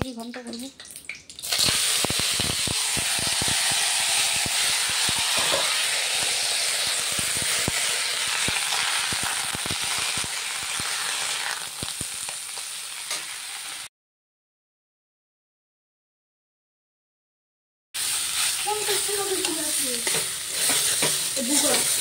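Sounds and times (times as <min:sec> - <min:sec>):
cabbage sizzling in hot oil: 0:01.4 - 0:13.9, 0:18.0 - 0:22.0
steel spatula scraping pan: 0:03.0 - 0:07.7, 0:18.3 - 0:22.0.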